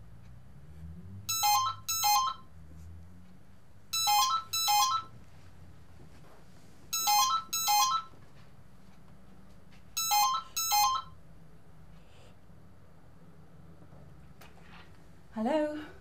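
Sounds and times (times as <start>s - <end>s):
telephone ringing with electronic beeps: 1.3s - 2.5s, 4.0s - 5.2s, 7.0s - 8.2s, 10.0s - 11.2s.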